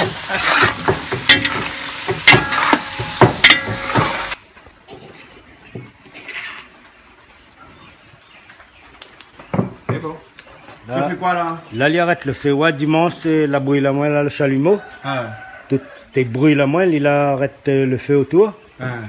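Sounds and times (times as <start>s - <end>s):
meat sizzling in hot oil: 0.0s - 4.4s.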